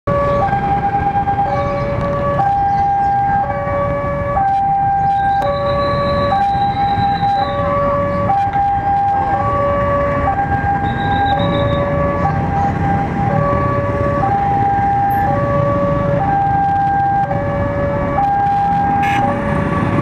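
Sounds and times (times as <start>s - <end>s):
motorbike and car engines: 0.1s - 20.0s
two-tone crossing alarm: 0.1s - 20.0s.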